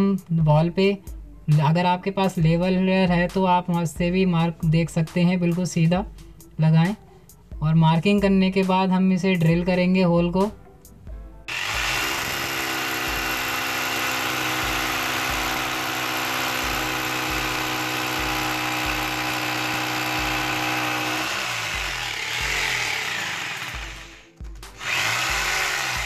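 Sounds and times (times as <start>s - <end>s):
electric drill boring into wall: 11.5s - 26.0s.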